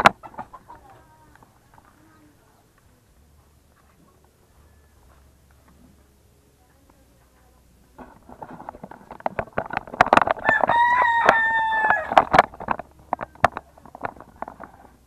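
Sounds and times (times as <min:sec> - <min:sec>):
rooster crowing: 0:10.4 - 0:12.3.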